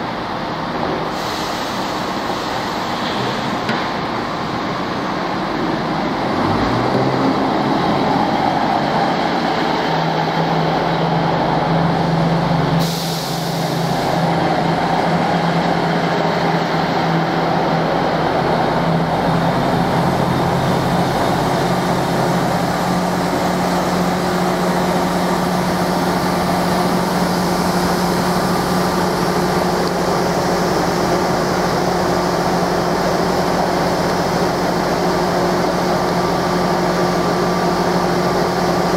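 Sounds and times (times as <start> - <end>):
diesel train engines running: 0.0 - 38.9
air hiss: 1.1 - 3.7, 12.7 - 15.2.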